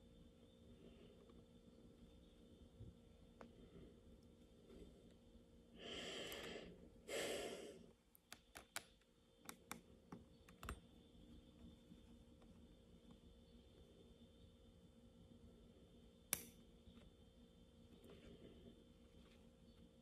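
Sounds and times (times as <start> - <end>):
person breathing heavily: 5.7 - 8.0.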